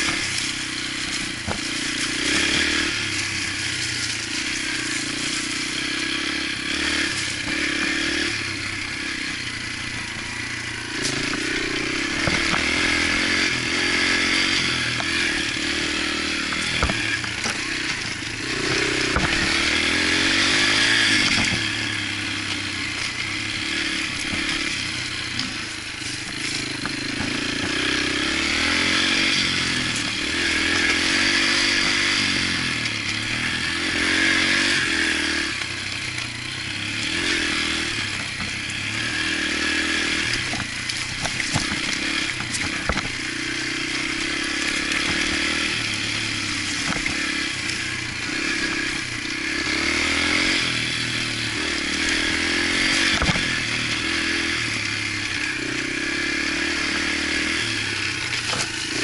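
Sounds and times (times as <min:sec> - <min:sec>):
bike knocking over rough trail: 0:00.0 - 0:05.9, 0:11.0 - 0:33.5, 0:37.0 - 0:38.8, 0:39.5 - 0:49.0, 0:51.8 - 0:54.2, 0:58.2 - 0:59.0
dirt bike engine revving: 0:00.0 - 0:59.0.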